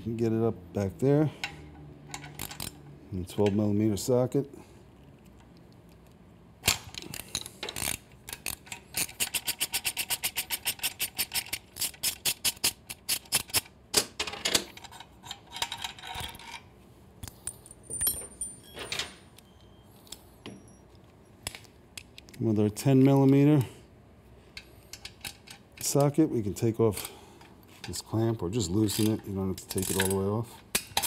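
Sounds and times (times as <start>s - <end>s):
socket ratchet clicking: 1.4s - 2.9s
metallic clinks of tool and hardware: 17.2s - 21.0s, 28.8s - 31.0s.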